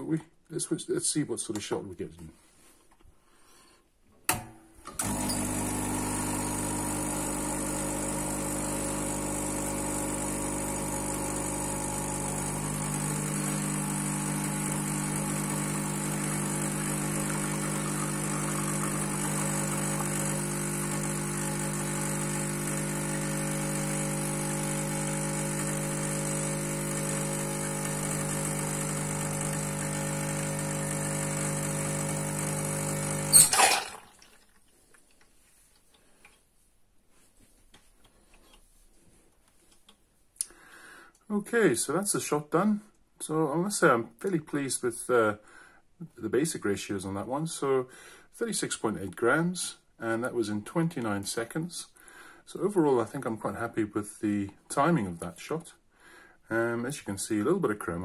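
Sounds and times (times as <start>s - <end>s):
espresso machine pump running: 5.0s - 33.8s.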